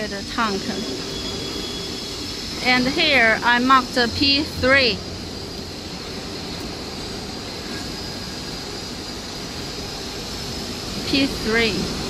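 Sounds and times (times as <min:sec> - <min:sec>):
high constant whine: 0:00.0 - 0:12.0
machinery hiss: 0:00.0 - 0:12.0
low hum: 0:00.3 - 0:12.0.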